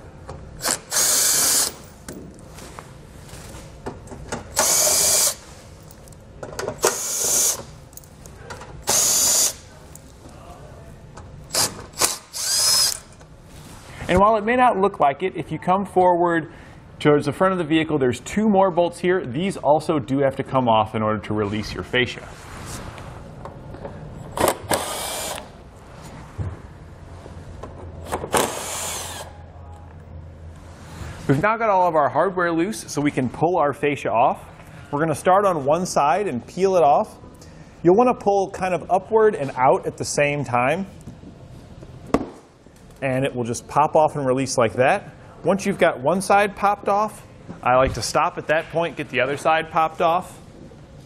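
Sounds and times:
cordless impact driver running: 12.0 - 13.0, 24.5 - 25.5, 28.3 - 29.3
cordless driver whining: 28.2 - 29.3.

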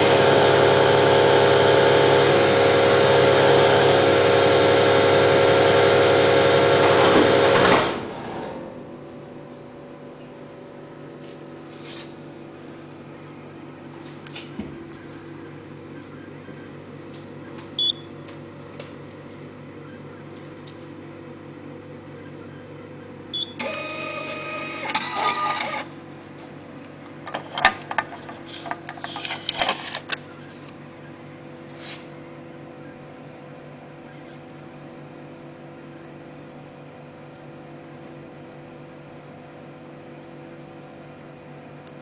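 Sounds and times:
steady electrical hum: 8.0 - 42.0
clicking whirring bursts: 23.4 - 25.9
receipt printer running: 23.5 - 26.0.

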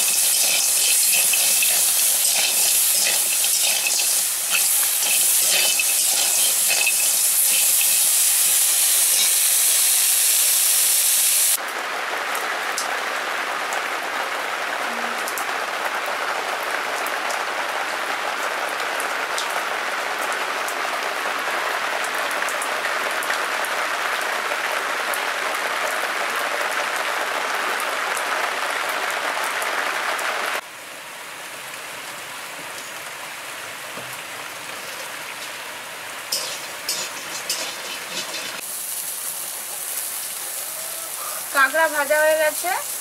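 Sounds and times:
crabs sizzling in oil: 0.0 - 11.6, 33.7 - 43.0
heavy rain on a tiled roof: 0.0 - 43.0.

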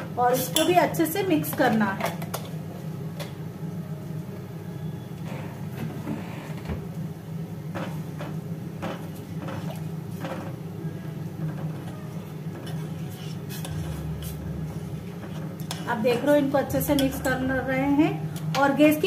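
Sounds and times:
steady low hum: 0.0 - 19.0
spoon scraping a metal pot: 12.6 - 14.5.

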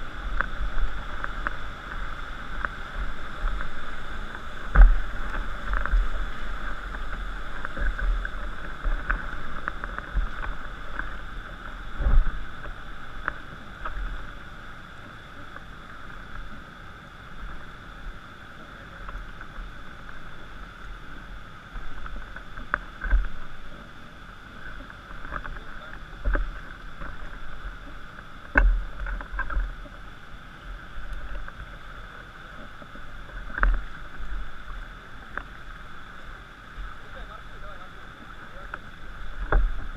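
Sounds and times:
river water rushing: 0.0 - 39.9.

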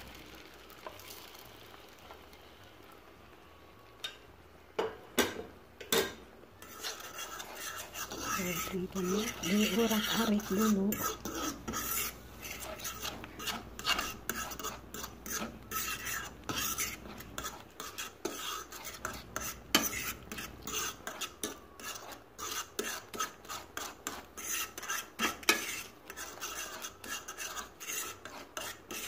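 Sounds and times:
fork scraping frying pan: 6.6 - 29.0.

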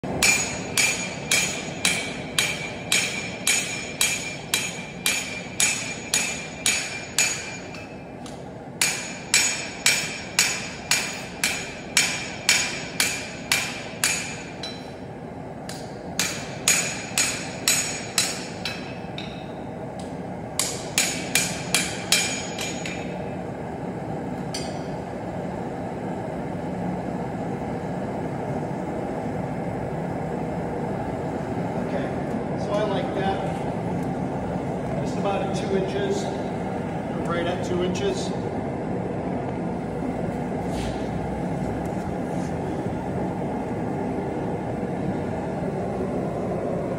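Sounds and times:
hammer blows ringing on anvil: 0.1 - 8.1, 8.8 - 15.0, 15.7 - 19.6, 20.6 - 23.2, 24.5 - 25.0.

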